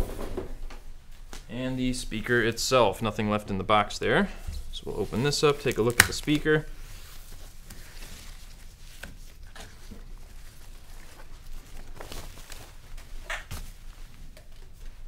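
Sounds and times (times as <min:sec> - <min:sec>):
packing wrap rustling and crinkling: 0:04.7 - 0:15.0.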